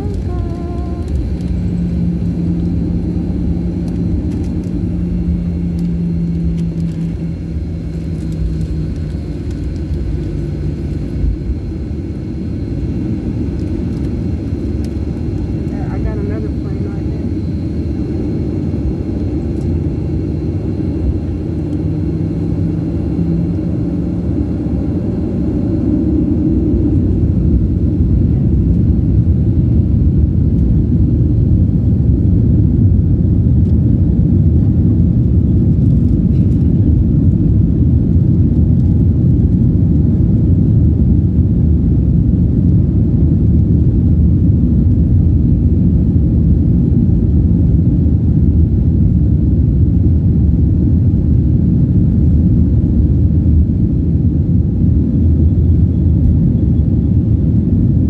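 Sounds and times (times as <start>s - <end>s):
jet engine and runway rumble: 0.0s - 58.0s.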